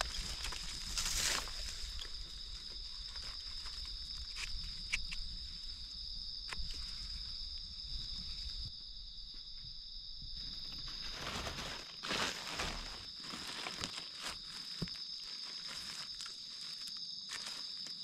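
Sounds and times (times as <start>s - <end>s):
dry leaves rustling and crackling: 0.0s - 2.2s, 10.8s - 17.8s
high insect trill: 0.0s - 18.0s.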